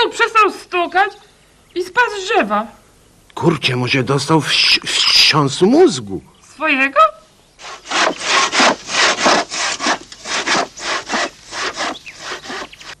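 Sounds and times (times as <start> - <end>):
crosscut saw sawing wood: 7.6 - 13.0.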